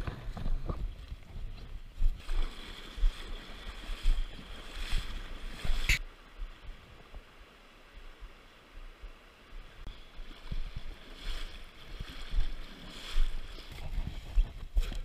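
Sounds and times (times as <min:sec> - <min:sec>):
water splashing around wading legs: 0:00.0 - 0:06.0, 0:09.9 - 0:15.0
stream rushing: 0:02.0 - 0:14.0.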